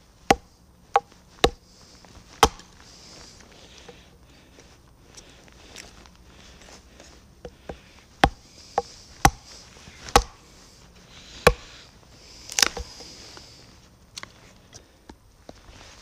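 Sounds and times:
blade chopping wood: 0:00.3 - 0:01.6, 0:02.4 - 0:02.8, 0:07.4 - 0:10.4, 0:11.4 - 0:11.7, 0:12.5 - 0:13.0.

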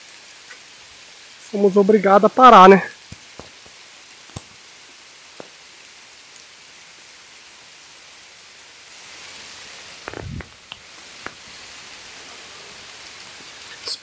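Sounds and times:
heavy rain on river and leaves: 0:00.0 - 0:14.0
close single raindrops tapping: 0:02.3 - 0:07.2, 0:09.6 - 0:12.2.

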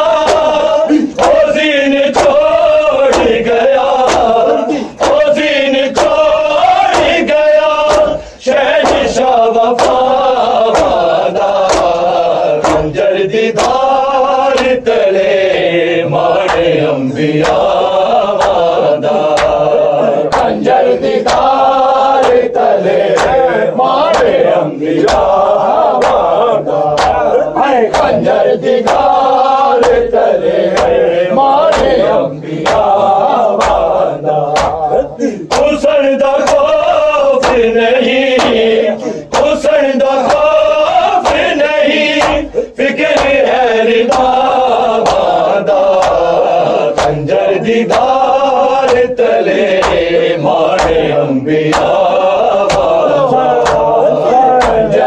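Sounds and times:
men chanting a lament: 0:00.0 - 0:55.0
rhythmic chest beating: 0:00.0 - 0:55.0.

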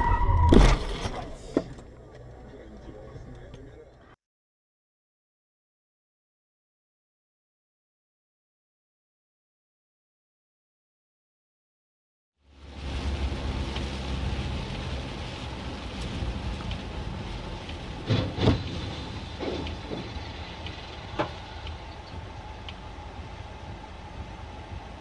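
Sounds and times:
loud vehicle crash: 0:00.0 - 0:01.8, 0:17.9 - 0:21.4
car engine and tyre rumble: 0:00.0 - 0:04.2, 0:12.4 - 0:25.0.

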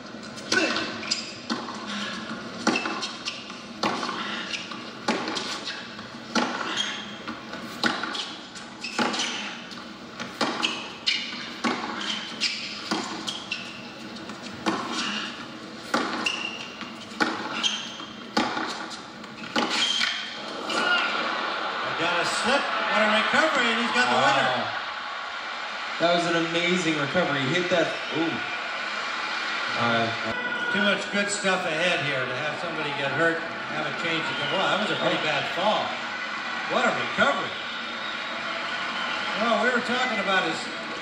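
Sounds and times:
tennis ball struck by rackets: 0:10.2 - 0:13.6, 0:14.2 - 0:15.2, 0:15.8 - 0:21.1.

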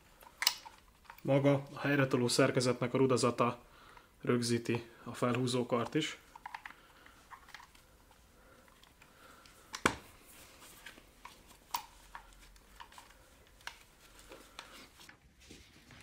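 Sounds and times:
small metallic clicks: 0:00.2 - 0:01.3.

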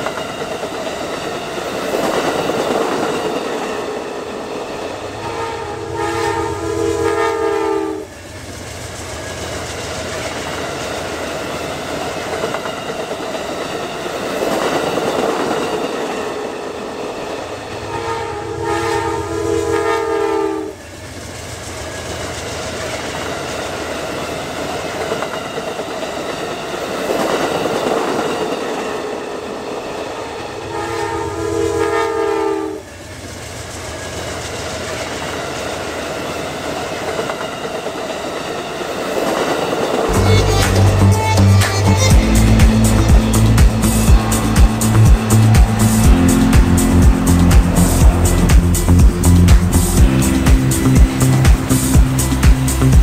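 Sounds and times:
passenger cars rumbling on rails: 0:00.0 - 0:53.0
train horn: 0:05.1 - 0:08.2, 0:17.8 - 0:20.8, 0:30.6 - 0:32.9, 0:40.1 - 0:52.9.

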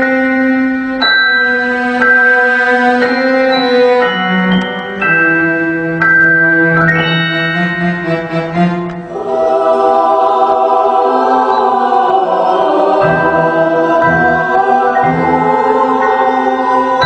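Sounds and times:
music of long held chords: 0:00.0 - 0:17.0.

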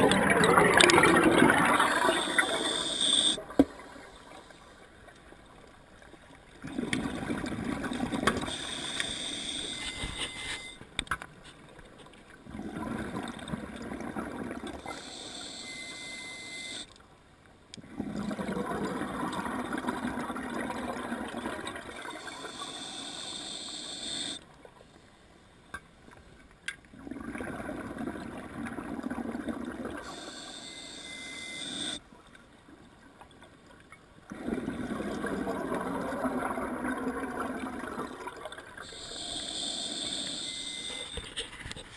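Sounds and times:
gurgling exhaled bubbles: 0:00.0 - 0:03.4, 0:06.6 - 0:08.6, 0:12.5 - 0:14.9, 0:17.8 - 0:22.5, 0:27.0 - 0:30.1, 0:34.3 - 0:39.0
diver breathing through regulator: 0:01.9 - 0:03.4, 0:08.5 - 0:10.8, 0:14.8 - 0:16.8, 0:22.2 - 0:24.4, 0:30.0 - 0:32.0, 0:38.9 - 0:41.2.

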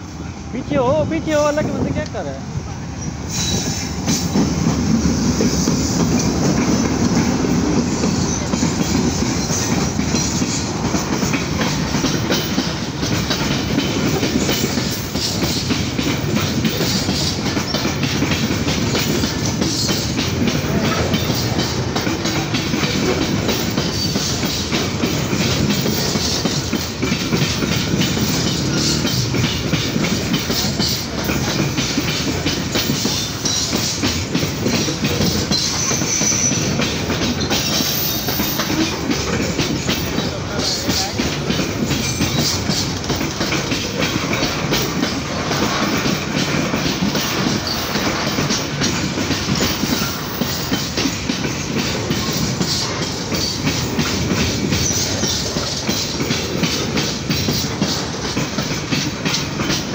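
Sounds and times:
locomotive engine passing: 0:00.0 - 0:59.9
train wheels clickety-clack: 0:00.0 - 0:59.9.

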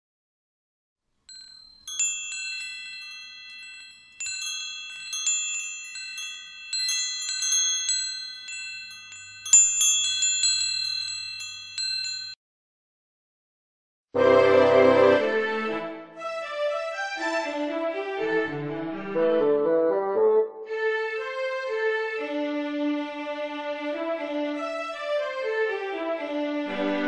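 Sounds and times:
wind chimes ringing: 0:01.3 - 0:12.4.

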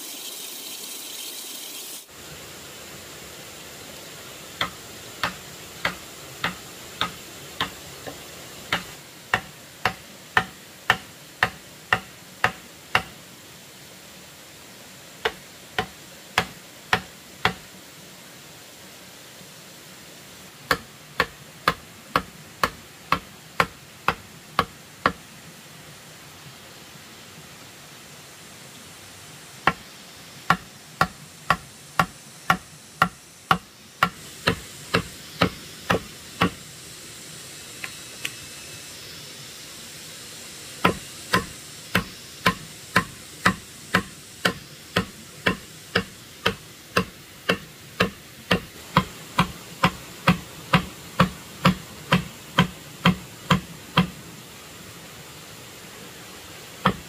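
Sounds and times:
sharp rhythmic knocking: 0:08.7 - 0:13.1, 0:30.5 - 0:36.6, 0:40.8 - 0:54.1.

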